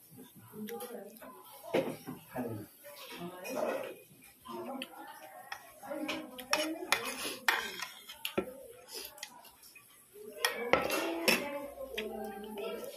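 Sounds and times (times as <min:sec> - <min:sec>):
metal spoon scraping ceramic plate: 0:06.4 - 0:08.2.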